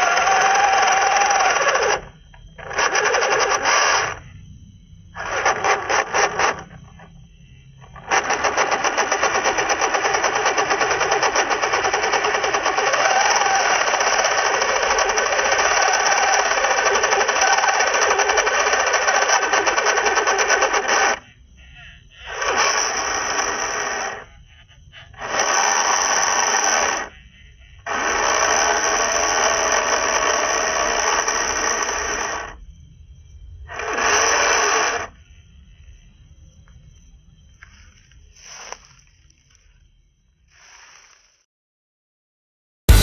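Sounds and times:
rc car motor grinding clatter: 0.0s - 4.2s, 5.2s - 7.1s, 7.8s - 21.3s, 22.2s - 24.3s, 25.1s - 27.1s, 27.8s - 32.6s, 33.7s - 35.2s, 38.4s - 39.0s.

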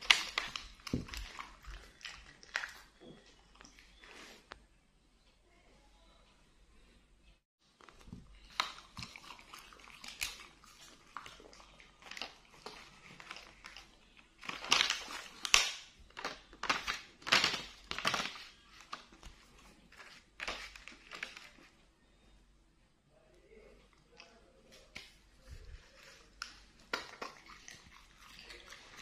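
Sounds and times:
plastic packaging crinkling: 0.0s - 2.8s, 7.8s - 19.3s, 19.9s - 21.7s.

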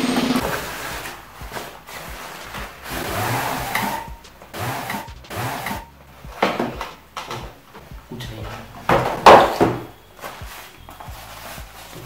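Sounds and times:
cardboard and fabric bag rustling: 0.4s - 3.1s, 10.2s - 12.0s.

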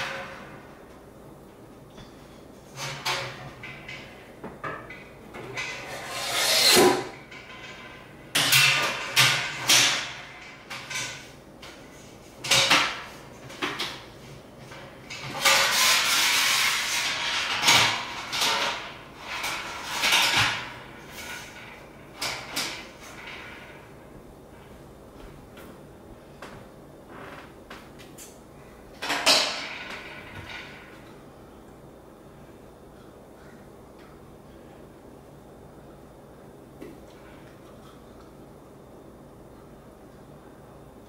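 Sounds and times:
metal sliding scrape: 5.6s - 7.7s, 15.3s - 17.6s.

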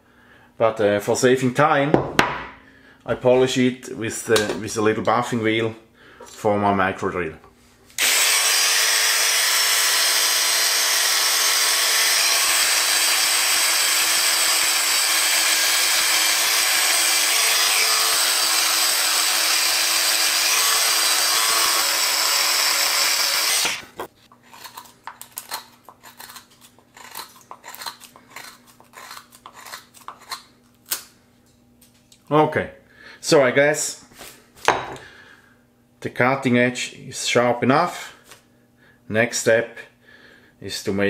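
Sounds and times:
micro drill running: 8.0s - 24.0s
blade scraping wood: 13.6s - 30.5s.

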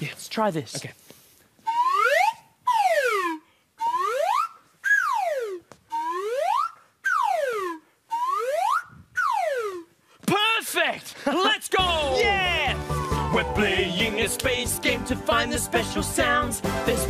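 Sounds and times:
slide whistle swoops: 1.6s - 9.9s.

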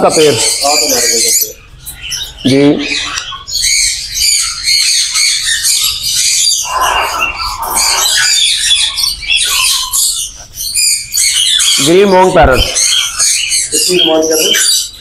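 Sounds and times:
parrots chirping and squawking: 0.0s - 15.0s
harsh low squawk: 6.5s - 10.4s.

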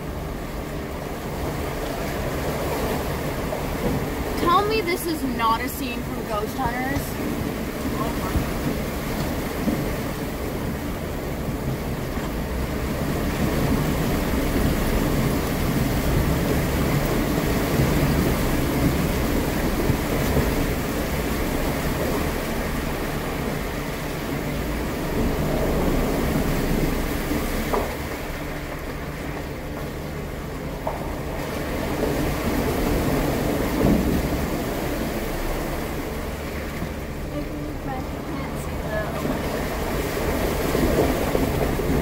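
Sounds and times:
car engine running: 0.0s - 42.0s.

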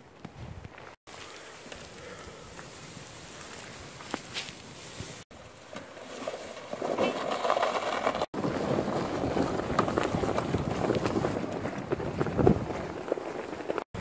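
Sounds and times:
footsteps crunching in snow: 0.2s - 5.3s
sled dragging over snow: 1.1s - 14.0s
wind on microphone: 8.4s - 14.0s.

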